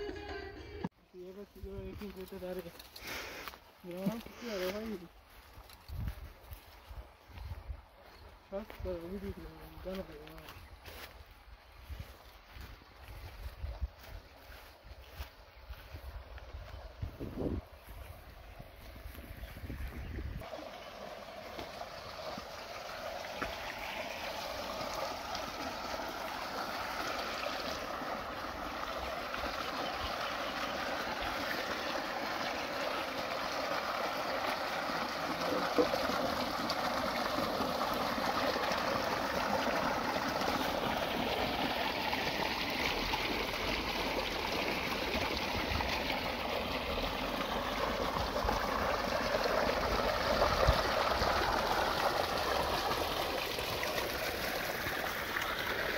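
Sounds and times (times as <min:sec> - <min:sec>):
water gushing into a concrete tank: 0:17.0 - 0:55.9.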